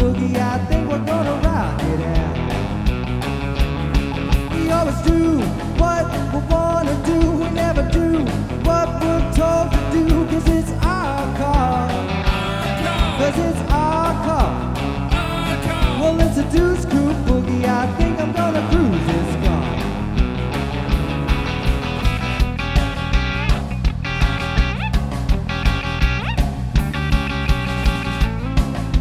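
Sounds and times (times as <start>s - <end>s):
bass guitar: 0.0s - 29.0s
drum beat: 0.0s - 29.0s
electric guitar lead: 0.0s - 29.0s.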